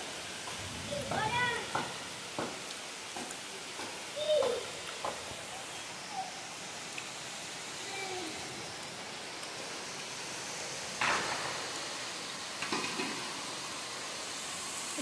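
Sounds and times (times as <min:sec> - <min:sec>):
heavy rain hissing: 0:00.0 - 0:15.0
small knocks: 0:01.1 - 0:02.6.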